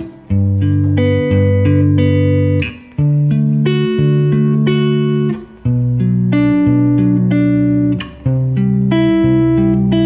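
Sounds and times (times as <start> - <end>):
fingerpicked clean electric guitar: 0.0 - 10.0.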